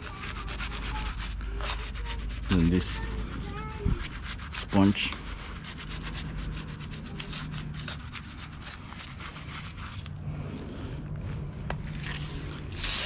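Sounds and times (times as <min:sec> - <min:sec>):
toothbrush scrubbing metal: 0:00.0 - 0:10.1.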